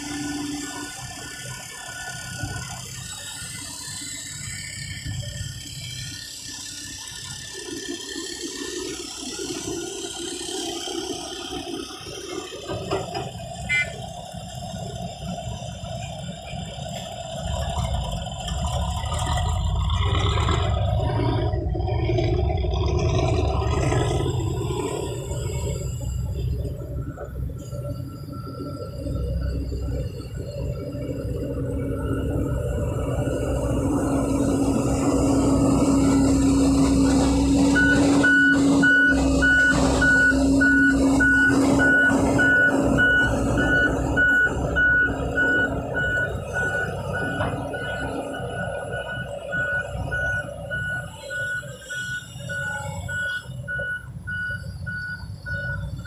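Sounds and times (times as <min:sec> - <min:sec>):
excavator engine and hydraulics: 0:00.0 - 0:56.0.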